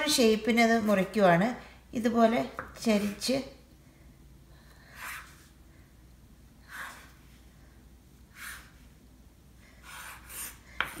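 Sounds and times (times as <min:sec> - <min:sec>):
knife cutting dough on wooden board: 0:09.8 - 0:11.0.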